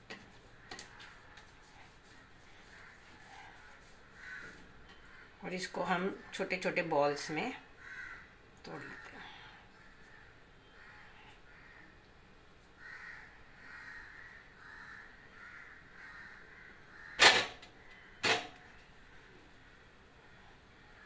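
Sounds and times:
faint bird calls: 0.5 - 5.4, 7.8 - 12.0, 12.8 - 21.0
crow cawing loudly: 4.1 - 5.4, 7.8 - 11.9, 12.8 - 18.1.

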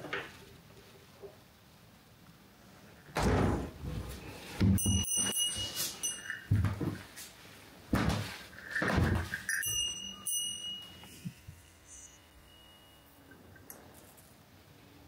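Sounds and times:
high ringing tone: 4.6 - 7.0, 8.8 - 13.8.

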